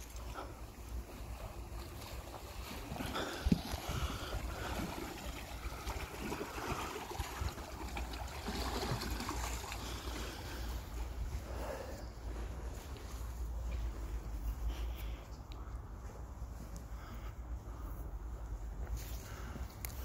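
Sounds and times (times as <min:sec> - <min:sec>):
water lapping on rocky shore: 0:00.0 - 0:15.2.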